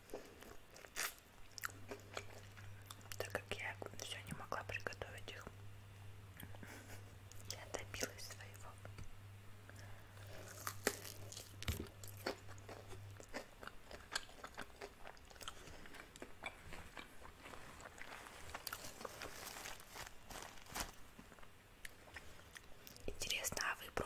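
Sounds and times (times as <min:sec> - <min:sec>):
crunchy chewing: 0:00.0 - 0:03.3, 0:09.7 - 0:23.1
low steady hum: 0:00.0 - 0:24.0.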